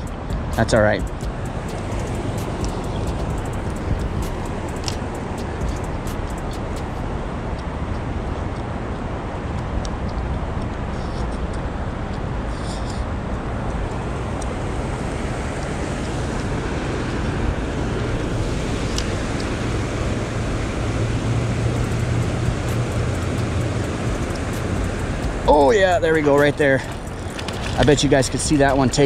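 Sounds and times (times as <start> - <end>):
river water rushing: 0.0 - 9.5, 12.2 - 29.0
low rumble: 11.6 - 28.4.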